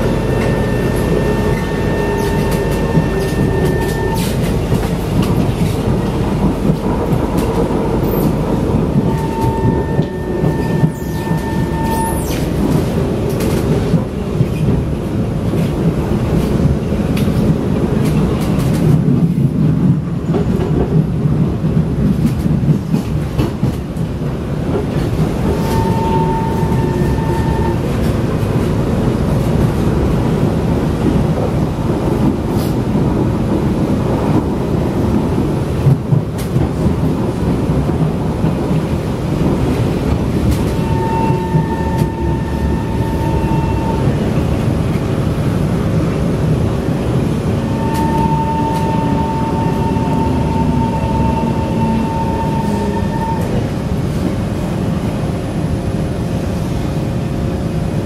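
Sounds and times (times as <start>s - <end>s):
train wheels rumbling on rails: 0.0s - 58.0s
steady high tone: 9.0s - 12.7s, 25.4s - 27.8s, 40.8s - 44.3s, 47.6s - 53.6s.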